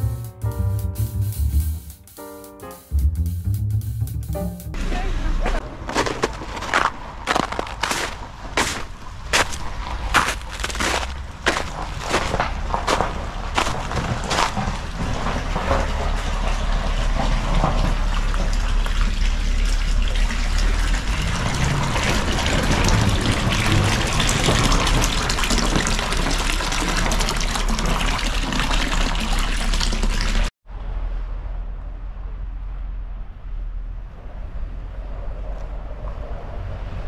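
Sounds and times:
footsteps crunching on snow: 5.5 - 14.8
water running into foot bath: 13.5 - 30.5.

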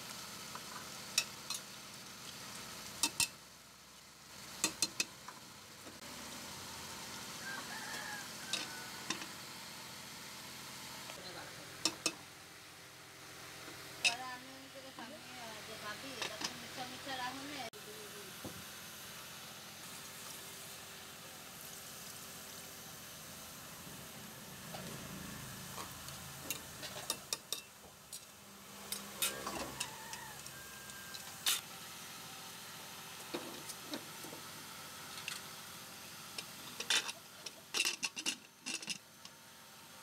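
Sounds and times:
metal clicks and clinks: 36.8 - 39.0.

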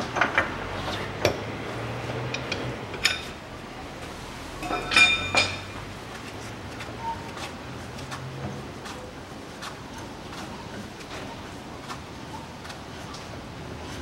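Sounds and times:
metal clinks of wrench and socket: 4.6 - 5.7.

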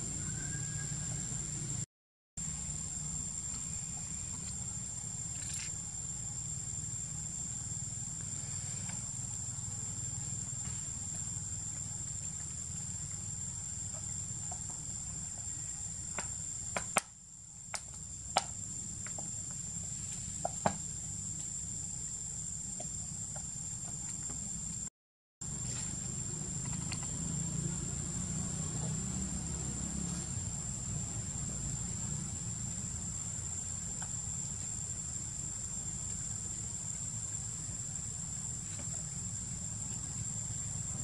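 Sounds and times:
insect drone: 0.0 - 41.0.

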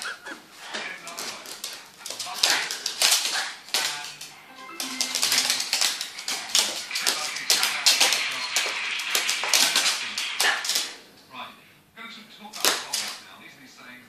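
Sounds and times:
dog claws clicking on wood floor: 0.7 - 4.3, 5.1 - 11.0, 12.6 - 13.2.

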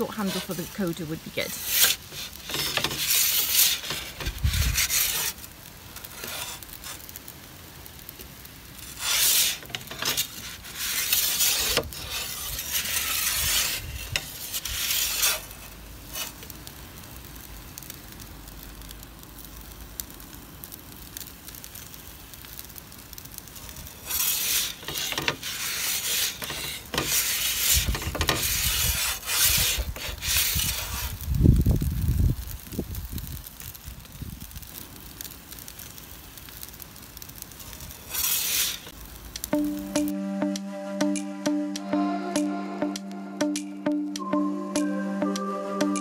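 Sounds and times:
metal peel scraping stone: 0.0 - 0.8, 1.6 - 7.2, 8.8 - 16.5, 24.0 - 31.2, 38.1 - 38.9.

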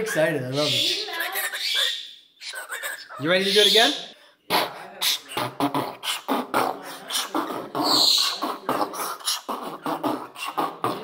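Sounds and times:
man beatboxing: 4.5 - 11.0.

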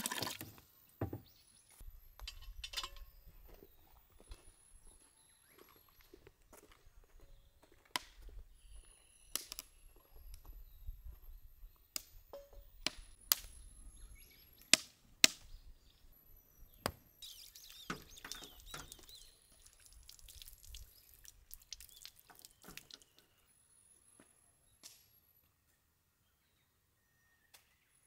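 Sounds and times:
water splashing onto pavement: 19.6 - 23.1.

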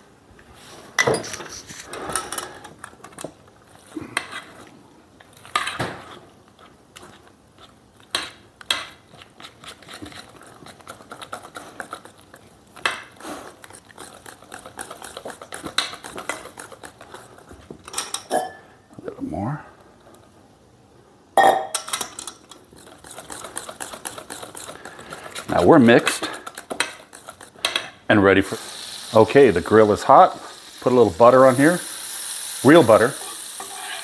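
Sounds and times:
whisk scraping metal bowl: 5.4 - 17.7, 22.6 - 27.8, 32.7 - 34.0.

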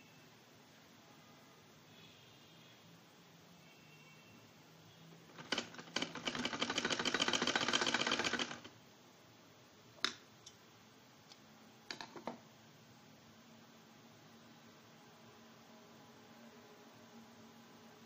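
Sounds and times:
sewing machine clicks: 5.3 - 8.7
sewing machine stitching: 5.3 - 8.7.

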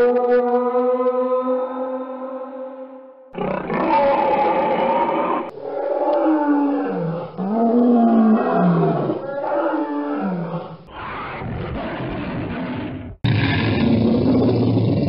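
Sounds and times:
dinosaur roars: 3.4 - 15.0
rough noisy growl: 11.4 - 15.0.

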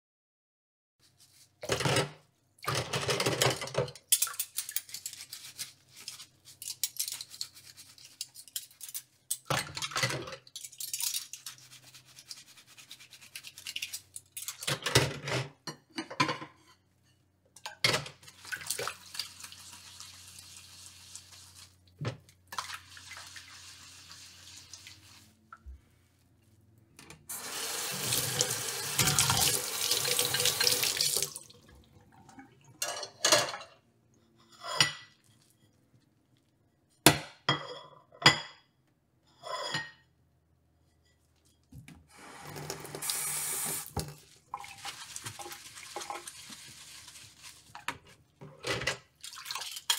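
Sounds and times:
dishes clattering: 14.4 - 16.9, 32.8 - 33.8.

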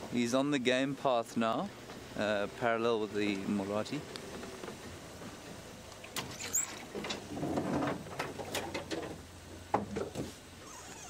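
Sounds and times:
brush rustling: 1.6 - 11.0.

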